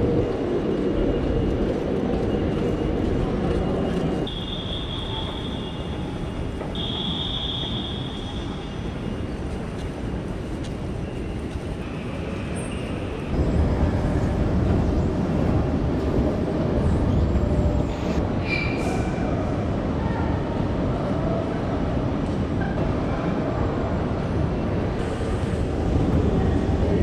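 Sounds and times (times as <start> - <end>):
railway station hum and rumble: 0.0 - 27.0.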